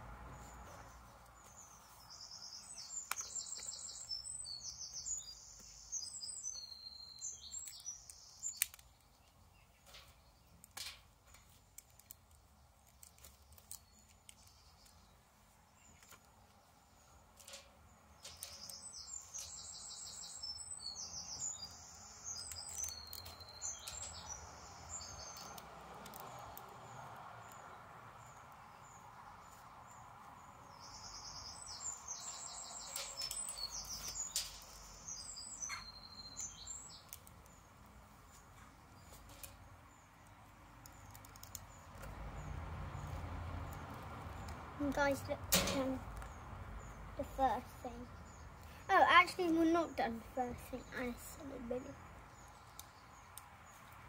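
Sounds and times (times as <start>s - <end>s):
songbird singing: 0.0s - 54.0s
plastic building bricks clicking: 9.9s - 15.0s, 25.4s - 26.8s, 40.8s - 42.1s.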